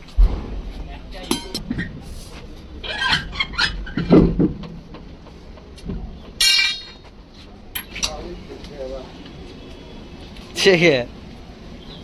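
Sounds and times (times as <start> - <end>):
heavy thud: 0.0 - 2.1
metal knocks and clanks: 0.0 - 2.1, 2.8 - 7.1
ringing metal strike: 6.4 - 7.0.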